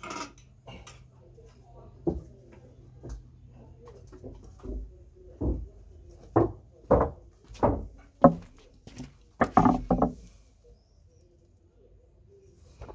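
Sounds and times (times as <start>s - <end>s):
dull thumps: 6.4s - 10.3s.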